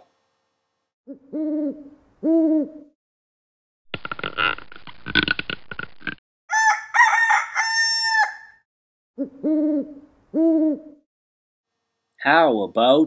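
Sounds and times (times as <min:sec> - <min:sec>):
owl hooting: 0:01.1 - 0:02.9, 0:09.2 - 0:11.0
rooster crowing: 0:06.5 - 0:08.6.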